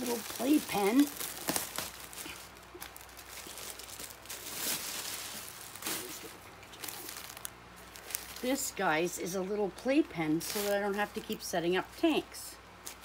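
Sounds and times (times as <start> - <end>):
plastic bag crinkling: 0.0 - 8.8, 10.4 - 11.4.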